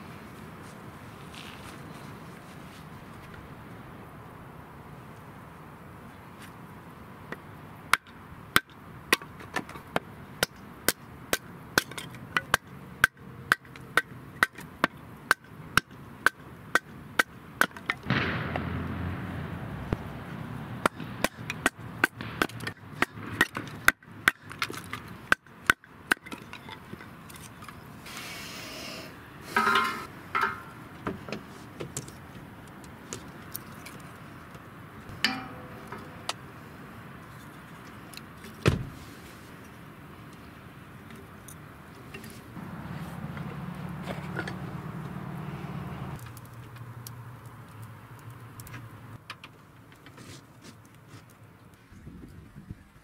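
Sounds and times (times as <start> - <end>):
split sticks clattering: 29.5 - 30.8, 35.1 - 36.6.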